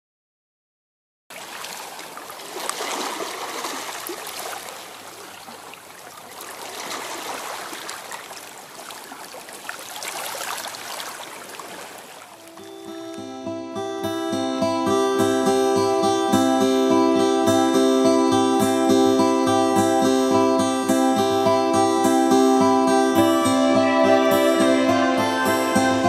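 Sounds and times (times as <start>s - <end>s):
water rippling over pebbles: 1.3s - 12.9s.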